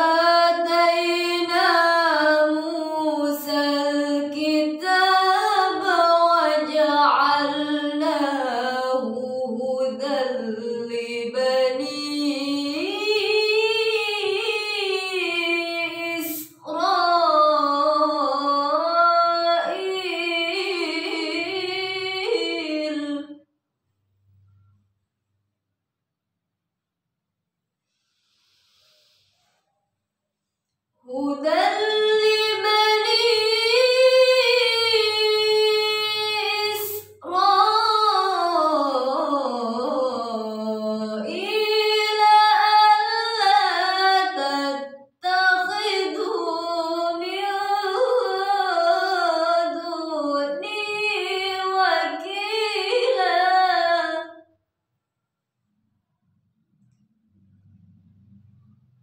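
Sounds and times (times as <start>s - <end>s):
woman reciting melodically: 0.0s - 23.4s, 31.1s - 54.4s
sharp breath: 27.9s - 29.8s.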